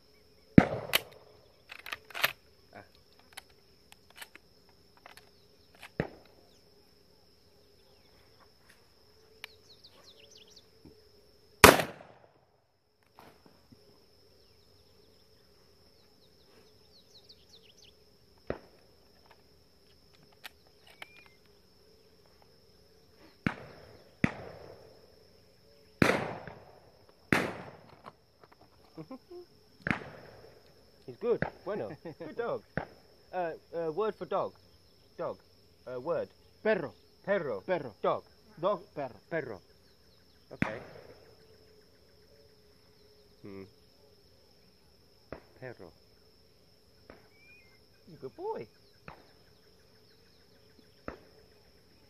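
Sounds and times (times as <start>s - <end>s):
insect drone: 0.0s - 52.0s
distant gunshots: 0.6s - 1.3s, 11.6s - 12.3s, 23.4s - 24.9s, 26.0s - 28.0s, 29.8s - 30.6s, 40.6s - 41.3s
loud shotgun shots: 0.6s - 1.3s, 11.6s - 12.3s, 23.4s - 24.8s, 26.0s - 27.9s.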